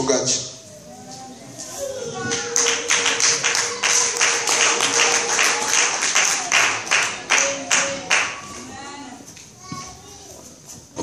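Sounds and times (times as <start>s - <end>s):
congregation clapping rhythmically: 2.2s - 8.6s.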